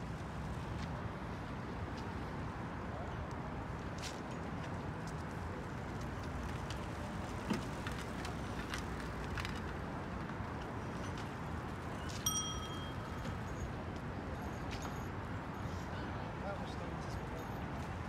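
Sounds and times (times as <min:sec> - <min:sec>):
outdoor background noise: 0:00.0 - 0:18.0
bicycle bell ding: 0:12.2 - 0:13.5.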